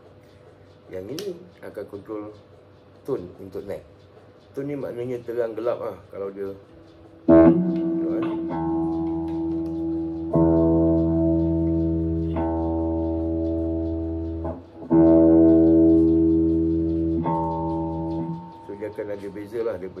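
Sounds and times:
electric guitar chord ringing: 7.3s - 20.0s.

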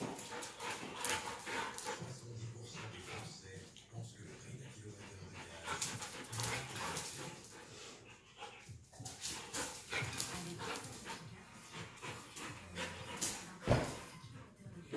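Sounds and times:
dogs scuffling: 0.0s - 3.6s, 5.4s - 7.7s, 8.6s - 14.1s
dogs panting: 0.0s - 14.9s.

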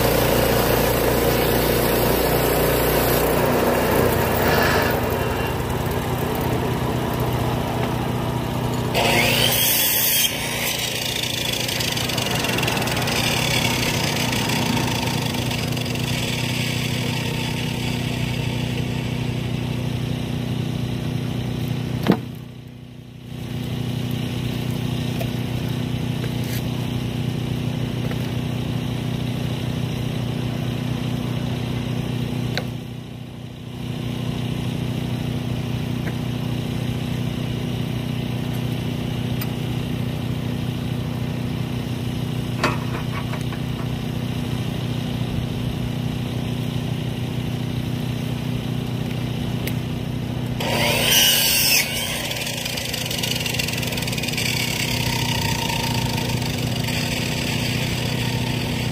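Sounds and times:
small gas engine idling: 0.0s - 9.2s, 10.5s - 58.9s
loud high-pitched squeal: 3.9s - 6.1s, 8.9s - 19.5s, 50.6s - 58.9s.

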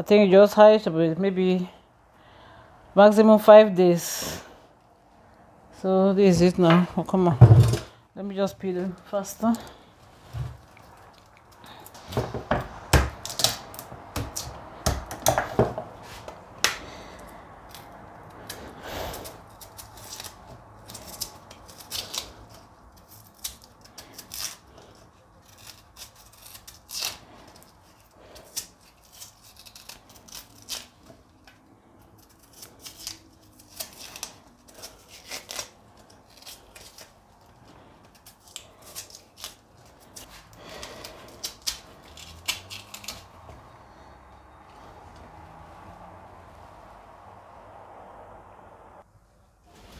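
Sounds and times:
knife peeling cassava: 8.6s - 46.4s.

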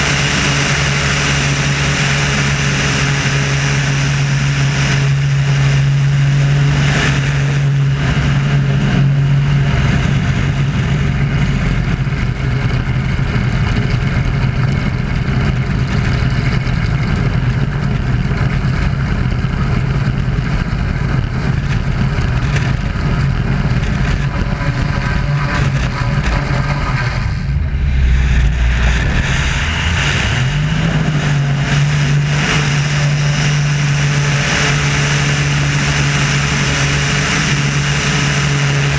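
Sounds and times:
biplane engine and propeller: 0.0s - 38.9s
rush of air: 24.8s - 35.3s.

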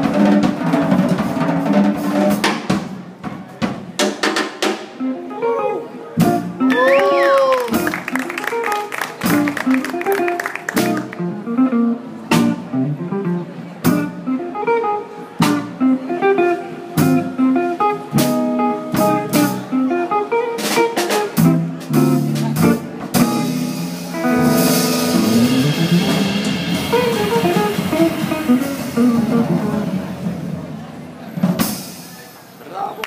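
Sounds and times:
jazz trio playing: 0.0s - 32.4s
long cymbal wash: 24.4s - 29.0s.

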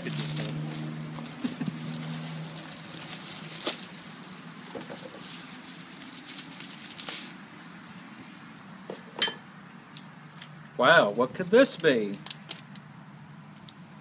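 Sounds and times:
plastic mailer crinkling: 0.0s - 7.4s.

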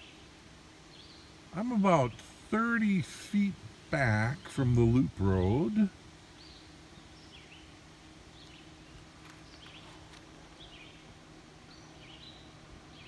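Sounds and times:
bird chirping: 0.0s - 1.4s, 4.1s - 13.0s
faint low hum: 0.0s - 13.0s.

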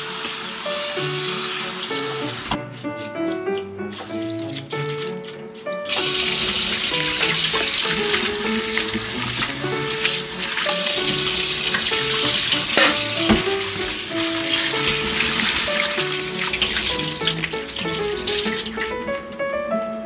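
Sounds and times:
background music: 0.0s - 20.0s
tap water running and splashing: 0.0s - 20.0s.

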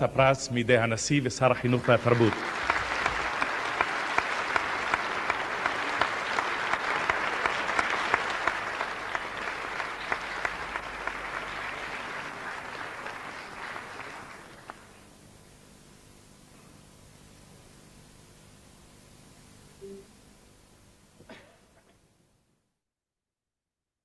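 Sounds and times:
audience applauding: 1.5s - 15.1s.

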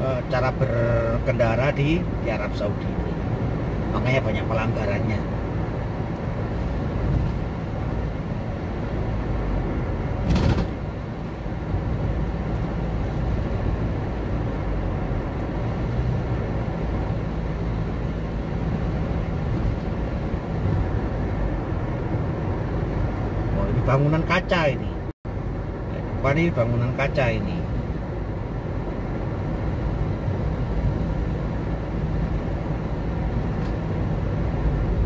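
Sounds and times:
car engine and tyre rumble: 0.0s - 35.0s.

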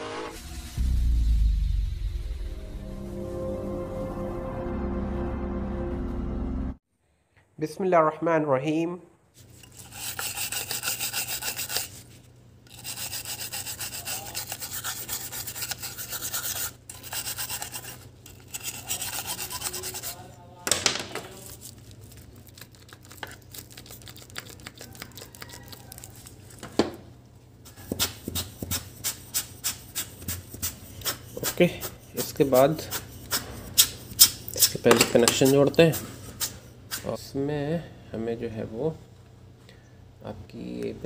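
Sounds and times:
low steady hum: 0.1s - 6.8s
rough scraping strokes: 9.4s - 20.3s.

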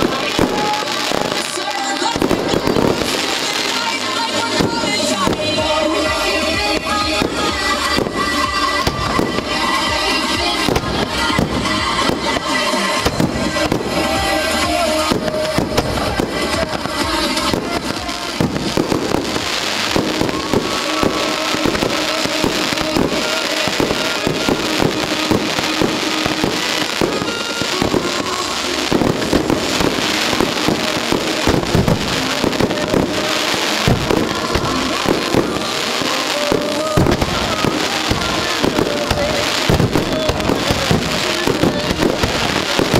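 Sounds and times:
fireworks bursting and crackling: 0.0s - 42.9s
music playing: 0.0s - 42.9s.

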